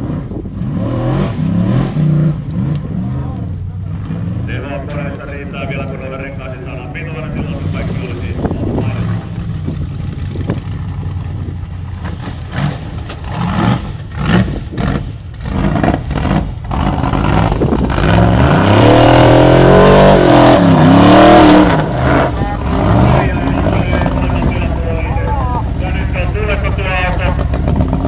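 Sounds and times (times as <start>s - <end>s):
buggy engine revving: 0.0s - 28.0s.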